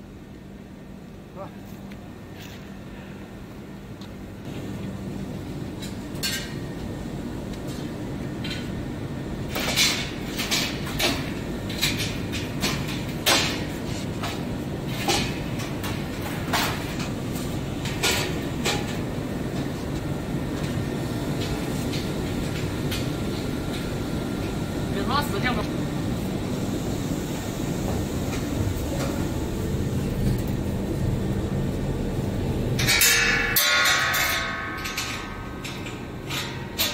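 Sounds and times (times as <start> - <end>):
machinery hum: 0.0 - 36.9
metal clanks and knocks: 32.8 - 36.9.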